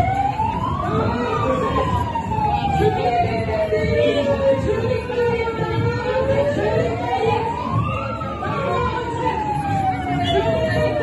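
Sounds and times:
hubbub of marching crowd: 0.0 - 11.0
siren wailing: 0.0 - 11.0.

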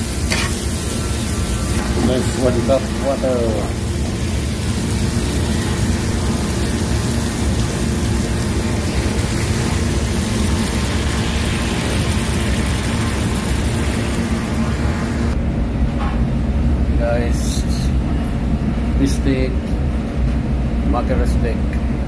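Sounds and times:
hot pan sizzling and bubbling: 0.0 - 15.4.

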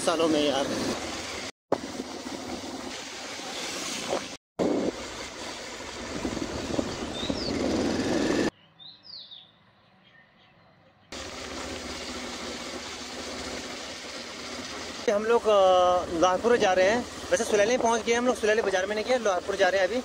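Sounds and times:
motorcycle engine riding: 4.2 - 8.5, 11.2 - 20.0
wind on microphone: 5.8 - 8.5
bird chirping: 6.9 - 7.8, 8.5 - 11.2.

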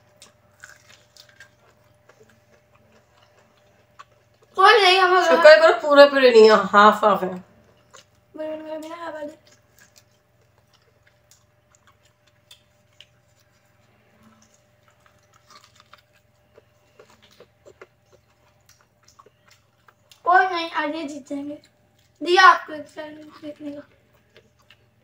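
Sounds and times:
person chewing corn: 0.0 - 4.6, 7.6 - 20.3, 21.5 - 22.2, 23.2 - 25.0.

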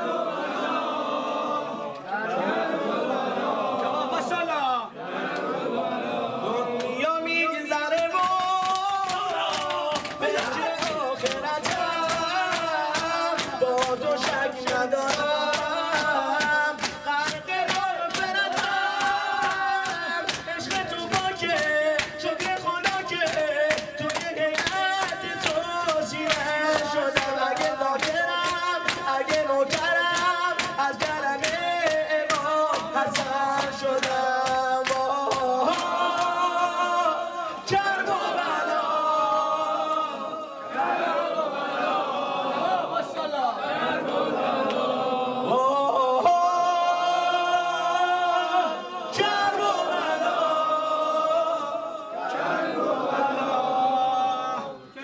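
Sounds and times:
man singing a lament: 6.6 - 40.6, 45.3 - 52.1
rhythmic sharp slaps: 7.7 - 40.0.

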